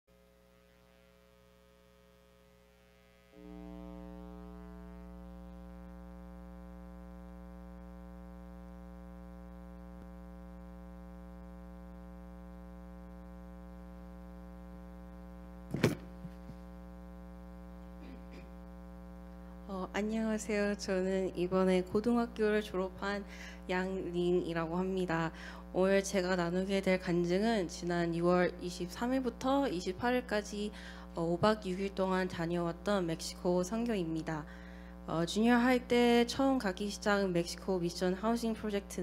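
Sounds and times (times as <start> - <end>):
electrical buzzing hum: 0.1 - 39.0
microphone handling thump: 15.7 - 16.7.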